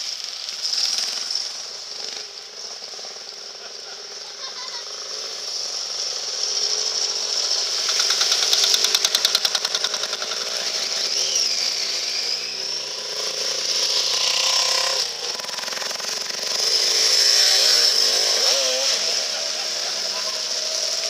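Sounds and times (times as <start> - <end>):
motorcycle engines passing: 0.0 - 21.0.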